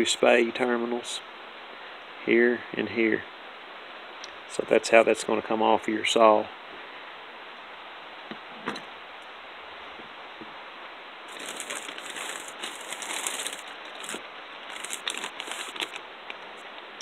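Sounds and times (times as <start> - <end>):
steady hiss: 0.0 - 8.3, 8.9 - 17.0
plastic bags crinkling: 11.3 - 16.1.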